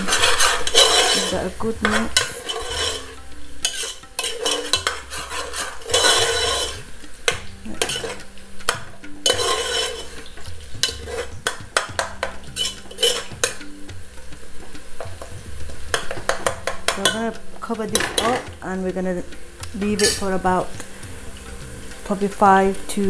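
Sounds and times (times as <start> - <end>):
spoon clinking against pot: 0.0 - 13.8, 15.0 - 18.5
oil sizzling: 0.0 - 23.0
spoon scraping a metal pot: 0.0 - 23.0.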